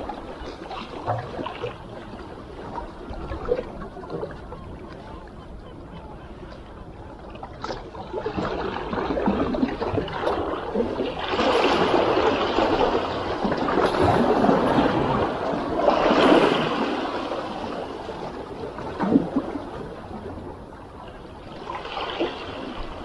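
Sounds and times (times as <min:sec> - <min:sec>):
waves washing among rocks: 0:07.6 - 0:20.5.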